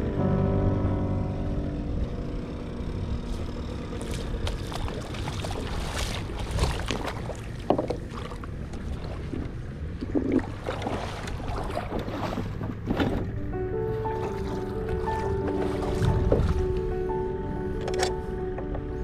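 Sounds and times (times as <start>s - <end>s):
splashy steps in shallow water: 4.0s - 13.2s, 14.2s - 16.6s
kayak gear knocks and rattles: 7.6s - 8.2s, 12.6s - 13.4s.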